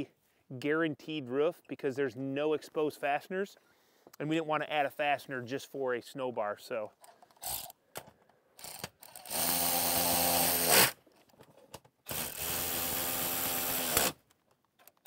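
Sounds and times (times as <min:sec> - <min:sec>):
electric ratchet running: 0:08.6 - 0:11.0, 0:12.1 - 0:14.2.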